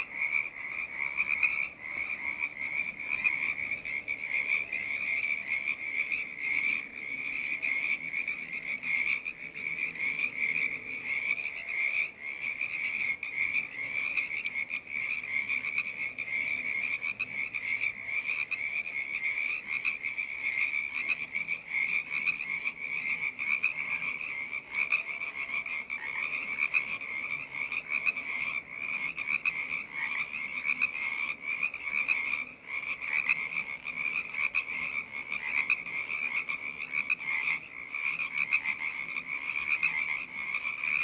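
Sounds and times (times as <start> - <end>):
frogs calling in chorus: 0.0 - 41.0.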